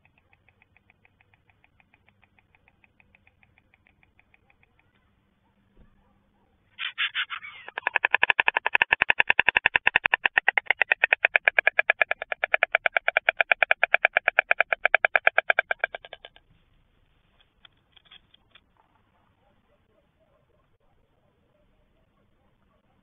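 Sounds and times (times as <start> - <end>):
stork bill-clattering: 6.8 - 16.5.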